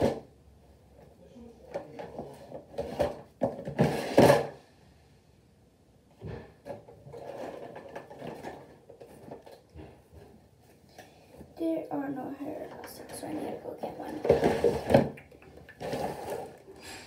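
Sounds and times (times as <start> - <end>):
plastic drawers clattering and scraping: 1.8 - 4.6, 6.2 - 10.4, 12.6 - 16.8.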